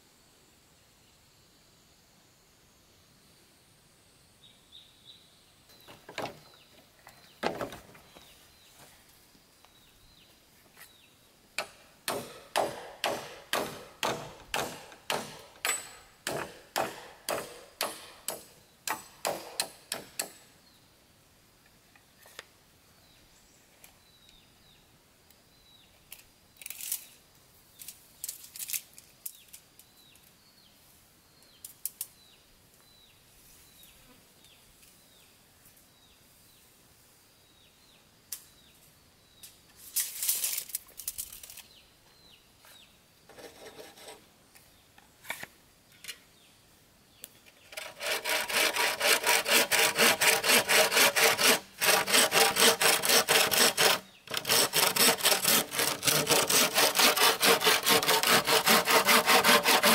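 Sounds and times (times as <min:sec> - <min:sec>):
birds chirping: 0:04.4 - 0:08.9
sharp knocks: 0:11.6 - 0:20.4.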